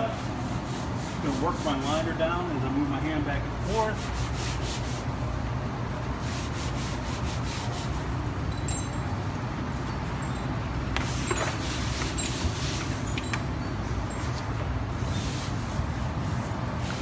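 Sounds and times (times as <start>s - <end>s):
hand rubbing vinyl wrap: 0.0s - 5.1s, 6.2s - 8.1s, 14.9s - 17.0s
steady low hum: 0.0s - 17.0s.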